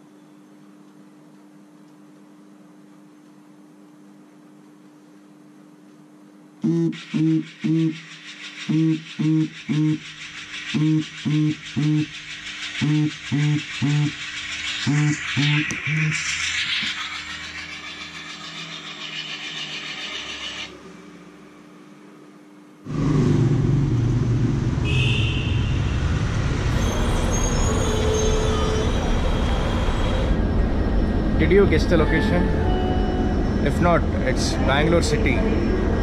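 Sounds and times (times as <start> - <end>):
alarm beeping: 8.7 - 20.7, 30.4 - 36.0
street traffic noise: 22.8 - 36.0.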